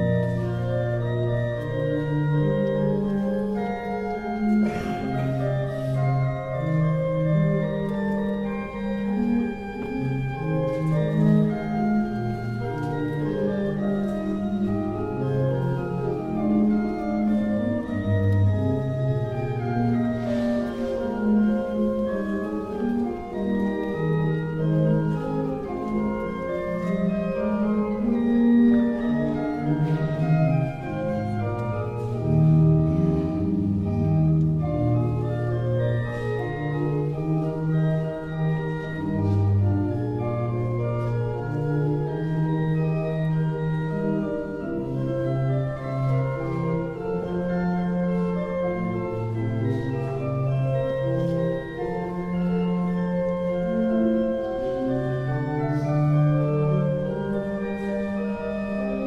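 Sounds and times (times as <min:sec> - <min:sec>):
church organ chords: 0:00.0 - 0:59.0.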